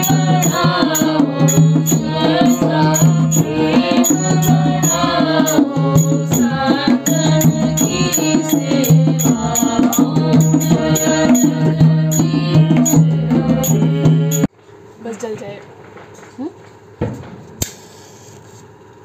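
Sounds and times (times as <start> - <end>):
devotional singing: 0.0 - 14.5
rattling percussion beat: 0.0 - 14.5
steady drone: 0.0 - 14.5.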